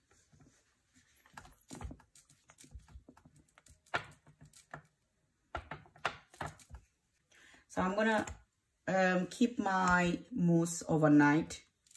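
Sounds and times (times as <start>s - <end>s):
spatula scraping and tapping mousse: 0.0s - 7.0s.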